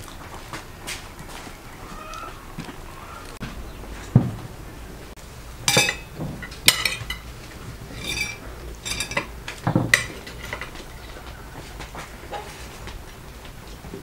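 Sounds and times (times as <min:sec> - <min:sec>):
cutlery clinking on ceramic plates: 0:05.6 - 0:07.3, 0:07.9 - 0:11.3.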